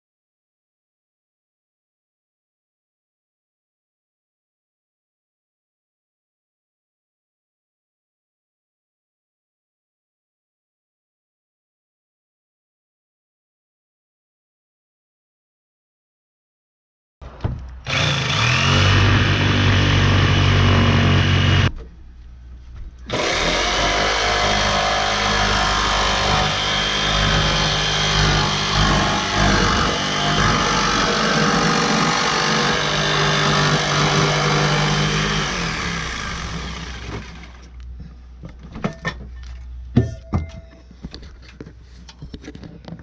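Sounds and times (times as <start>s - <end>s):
jigsaw cutting through metal roof: 17.7s - 21.7s, 23.1s - 37.7s
sharp knocks and clatters: 38.4s - 43.0s.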